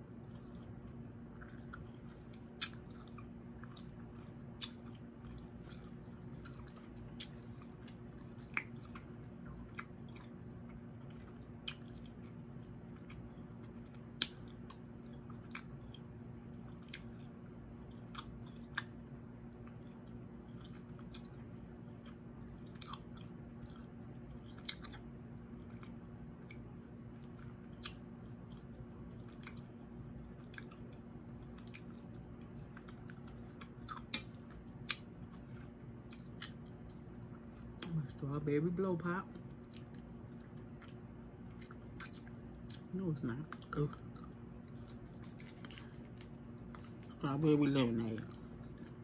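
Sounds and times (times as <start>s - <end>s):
faint low hum: 0.0s - 49.0s
person chewing and sucking candy: 43.6s - 47.2s.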